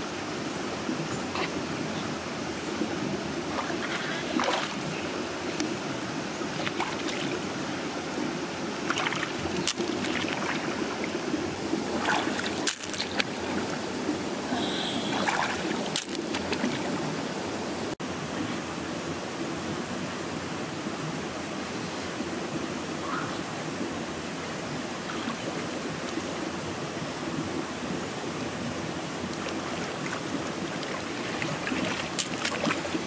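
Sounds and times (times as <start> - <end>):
flowing river water: 0.0 - 33.0
person splashing in water: 3.5 - 4.8, 8.9 - 11.0, 11.9 - 13.6, 15.0 - 16.9, 30.8 - 33.0.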